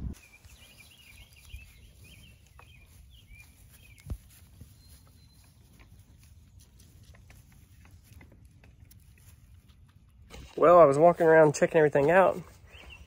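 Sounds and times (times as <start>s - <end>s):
low rumble: 0.0s - 0.3s
bird chirping and warbling: 0.2s - 5.7s
soft ticks and rustles: 0.9s - 10.5s.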